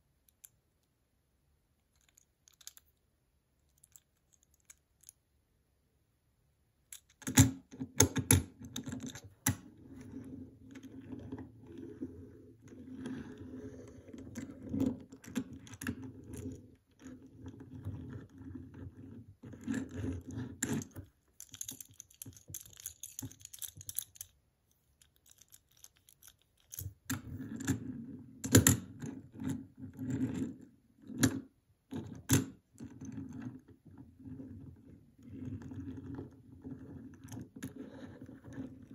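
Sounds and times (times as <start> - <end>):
toy car wheels rolling on table: 9.5 - 24.2
toy car clicks and knocks: 20.8 - 24.4, 25.0 - 27.2.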